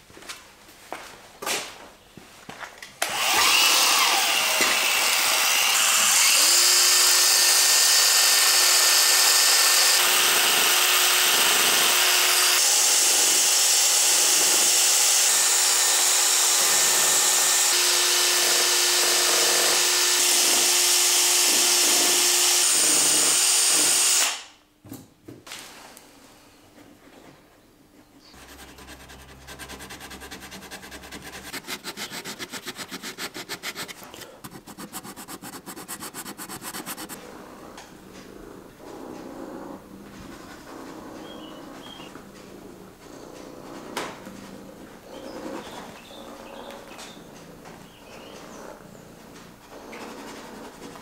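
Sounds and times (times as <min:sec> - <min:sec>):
cordless drill drilling: 0:03.0 - 0:24.4.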